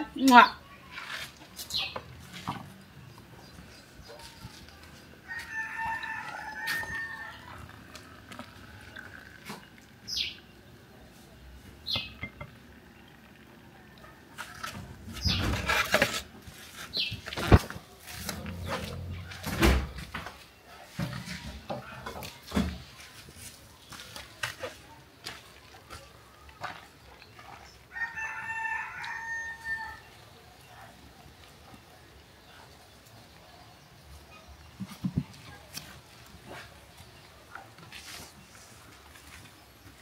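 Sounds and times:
rooster crowing: 0:05.2 - 0:07.8, 0:27.9 - 0:30.1.

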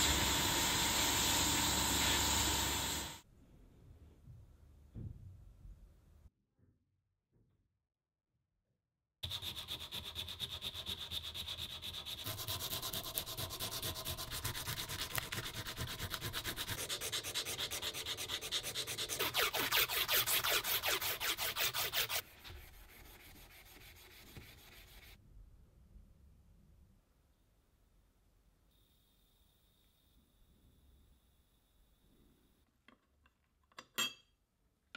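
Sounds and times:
steel wool rubbing: 0:09.7 - 0:25.2.

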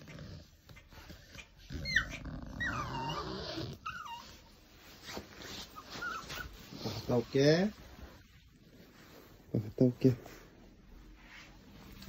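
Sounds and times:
dog whining: 0:00.0 - 0:07.0.

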